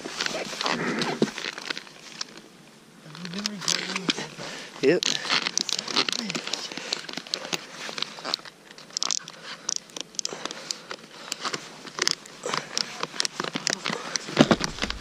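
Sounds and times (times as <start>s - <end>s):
rustling hiss: 0.0s - 15.0s
ratchet straps clicking: 4.9s - 15.0s.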